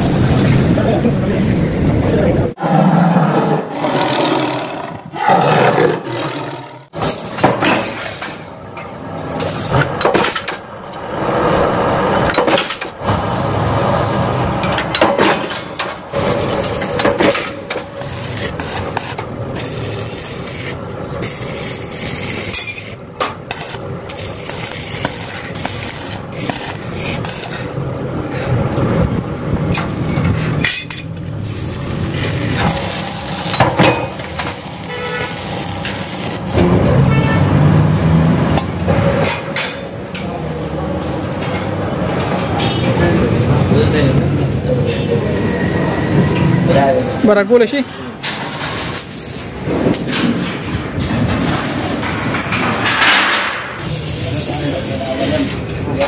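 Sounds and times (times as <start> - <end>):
metal scraping and rubbing: 14.0 - 28.7, 29.7 - 37.1
metal clanks and knocks: 49.7 - 53.8.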